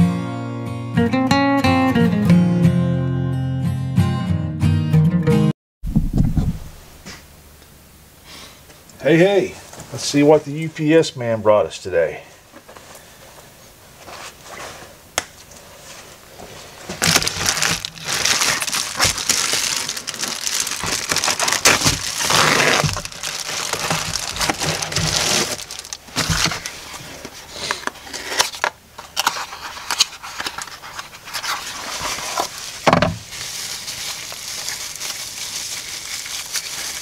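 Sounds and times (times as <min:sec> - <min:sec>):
plastic mailer crinkling and rustling: 0:16.0 - 0:37.0
cardboard box opening: 0:16.9 - 0:33.2.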